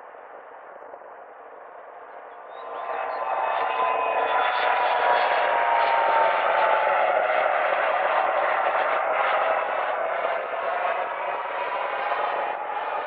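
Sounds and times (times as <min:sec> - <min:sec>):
jet engines whining: 0:02.6 - 0:13.0.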